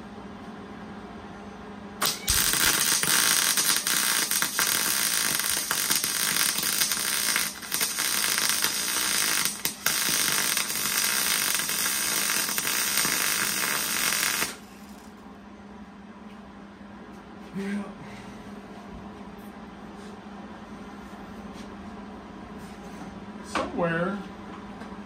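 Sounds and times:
arc welding crackle: 2.0 - 15.2.

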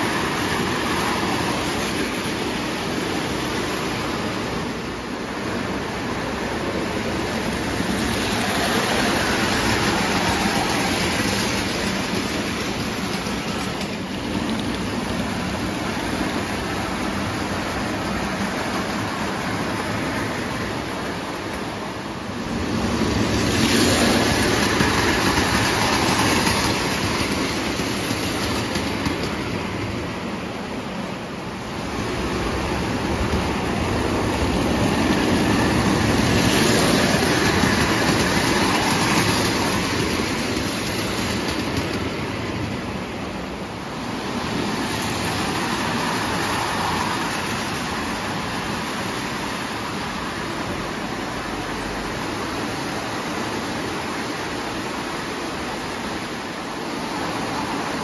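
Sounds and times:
toy train wheels clattering on rails: 35.8 - 42.1.

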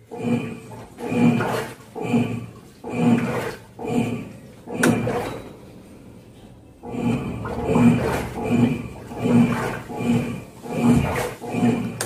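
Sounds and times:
washing machine agitating: 0.0 - 12.0.

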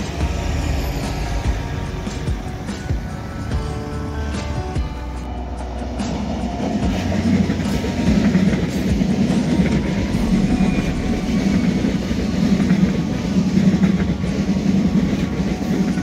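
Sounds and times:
music: 0.0 - 16.0
train rumbling on rails: 0.0 - 16.0
faint high whine: 9.3 - 14.9.

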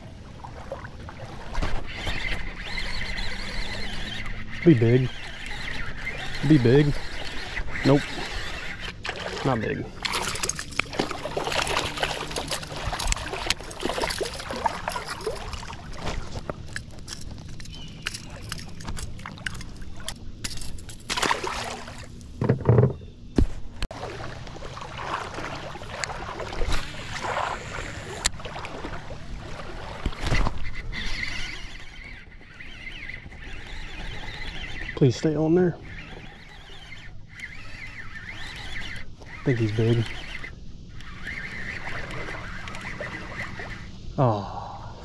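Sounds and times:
water lapping against a kayak: 0.0 - 20.1, 23.9 - 45.0
gear knocking in a boat: 22.4 - 23.0.

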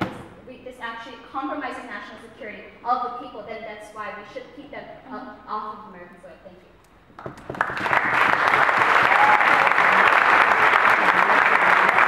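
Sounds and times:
audience applauding: 7.4 - 12.0.

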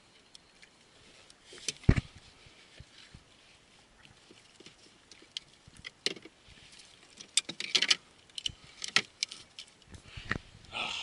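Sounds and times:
gear clicking and knocking in boat: 4.2 - 6.4, 7.0 - 10.1.

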